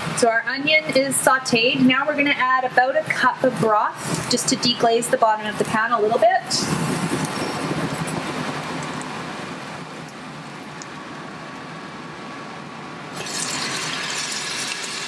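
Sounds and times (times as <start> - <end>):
hot pot hissing: 4.0 - 4.4, 13.1 - 15.0
broth pouring and splashing: 13.1 - 15.0.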